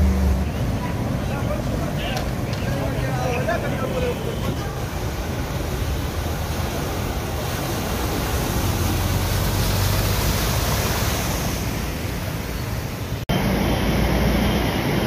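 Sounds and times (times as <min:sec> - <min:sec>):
low engine hum: 0:00.0 - 0:01.7, 0:05.4 - 0:15.0
water splashing around wheels: 0:00.0 - 0:15.0.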